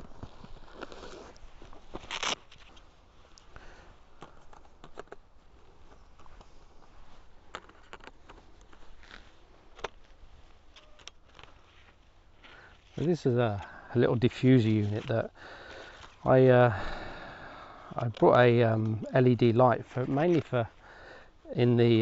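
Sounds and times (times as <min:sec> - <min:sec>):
camera gear rustling: 0:00.0 - 0:13.8, 0:14.4 - 0:16.3.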